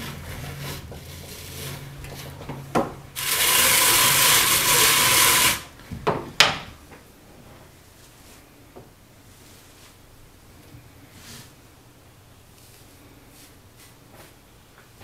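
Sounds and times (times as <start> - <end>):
drum carder scratchy rasp: 0.0 - 2.4, 3.1 - 5.7.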